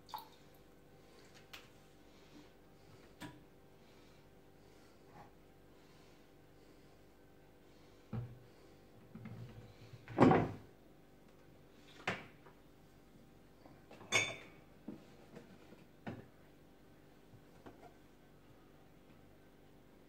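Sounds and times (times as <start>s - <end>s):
kitchenware knocking and clattering: 14.0s - 14.5s.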